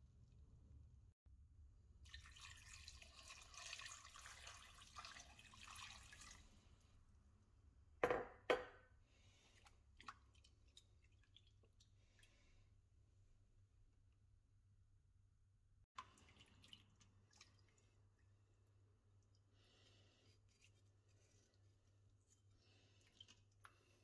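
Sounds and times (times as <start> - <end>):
water pouring into a metal pot: 2.0 - 6.9, 16.0 - 18.3
small water splashes and clicks: 9.4 - 12.5, 16.0 - 19.5, 22.2 - 24.0.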